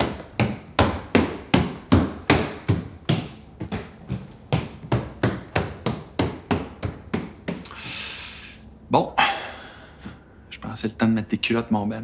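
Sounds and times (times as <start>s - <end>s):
footsteps on wooden stairs: 0.0s - 7.7s.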